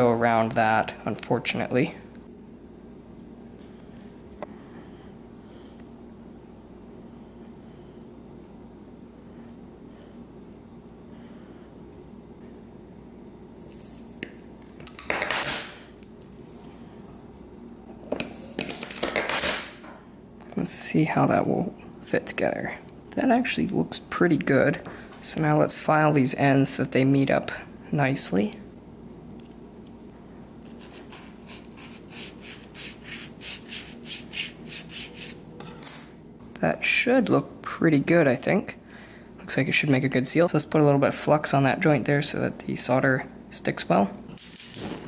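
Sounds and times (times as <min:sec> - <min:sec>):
metallic clinks: 0:13.6 - 0:14.5
hand file scraping metal: 0:30.8 - 0:35.4.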